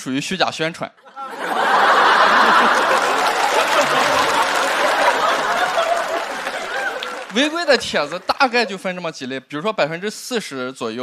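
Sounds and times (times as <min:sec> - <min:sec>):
audience laughing: 0:01.1 - 0:08.9
audience applauding: 0:01.4 - 0:08.8.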